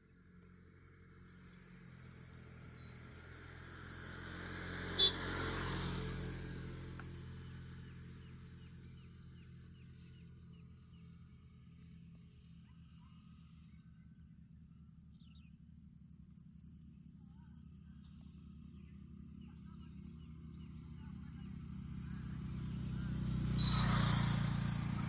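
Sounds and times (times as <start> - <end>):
vehicle passing: 3.1 - 10.3, 17.9 - 25.0.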